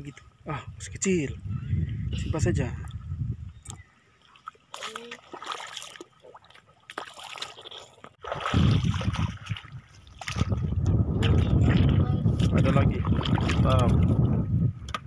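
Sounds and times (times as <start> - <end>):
seawater splashing underfoot: 4.3 - 14.2.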